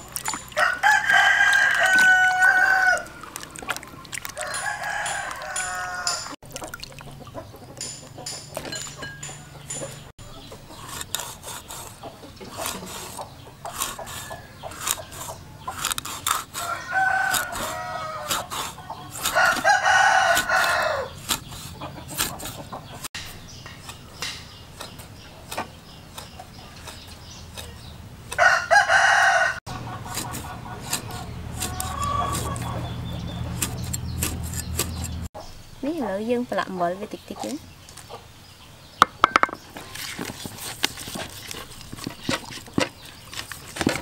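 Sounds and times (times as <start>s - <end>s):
rooster crowing: 0.6s - 3.2s, 4.4s - 6.4s, 16.6s - 18.5s, 19.3s - 21.2s, 28.4s - 29.6s
chicken calls: 16.5s - 23.1s, 26.1s - 35.5s.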